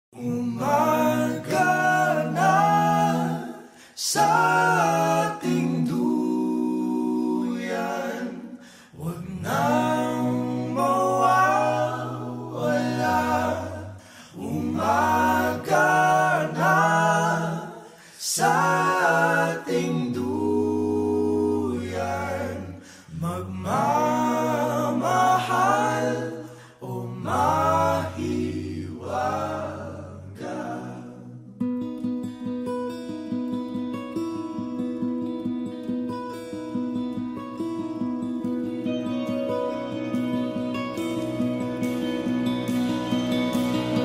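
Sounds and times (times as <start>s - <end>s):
a cappella group singing: 0.2s - 31.6s.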